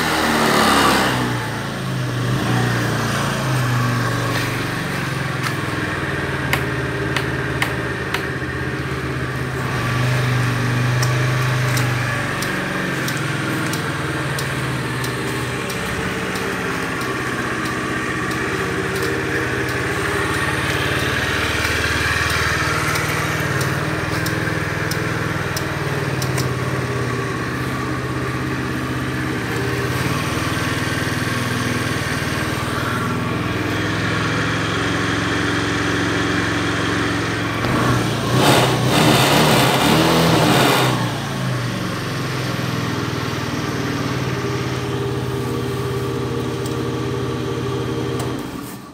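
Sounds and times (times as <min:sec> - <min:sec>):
scooter engine idling: 0:00.0 - 0:40.3, 0:41.0 - 0:48.9
scooter throttle rev: 0:00.0 - 0:48.9.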